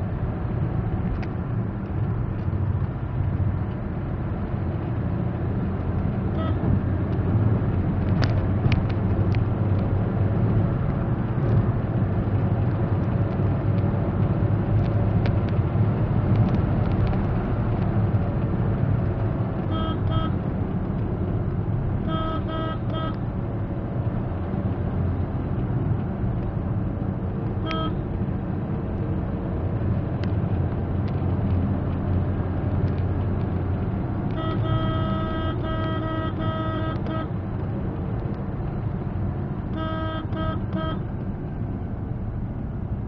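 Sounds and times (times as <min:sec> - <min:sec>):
engine and road noise in car: 0:00.0 - 0:43.0
car horn toots: 0:06.3 - 0:06.8, 0:19.6 - 0:20.4, 0:22.0 - 0:23.2, 0:27.6 - 0:28.0, 0:34.3 - 0:37.3, 0:39.7 - 0:41.1.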